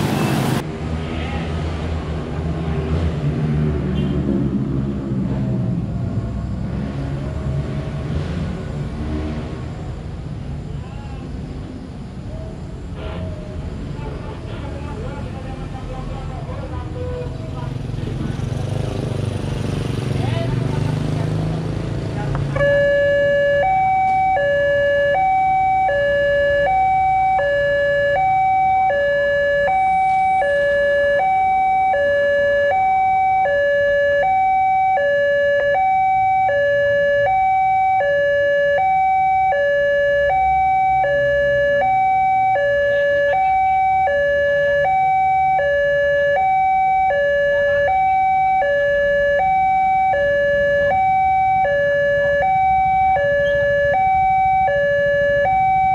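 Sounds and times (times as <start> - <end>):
level crossing two-tone alarm: 22.6 - 55.9.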